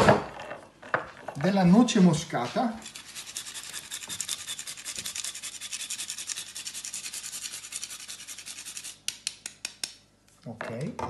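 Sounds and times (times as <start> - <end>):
nutmeg scraping on grater: 2.4 - 9.0.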